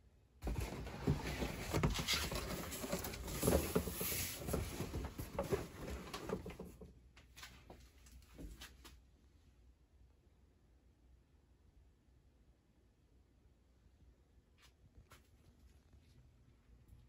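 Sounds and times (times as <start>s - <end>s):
rustling and scraping handling noise: 0.4s - 9.0s.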